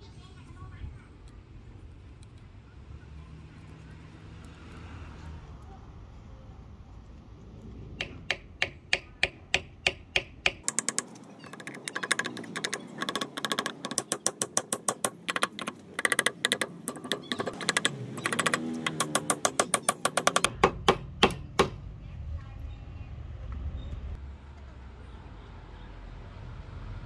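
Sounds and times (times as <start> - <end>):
small hammer tapping wooden wedges: 8.0 - 21.8.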